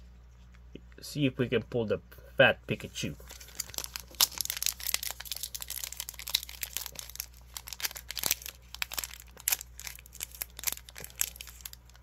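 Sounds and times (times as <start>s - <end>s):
foil pack crinkling: 3.2s - 12.0s.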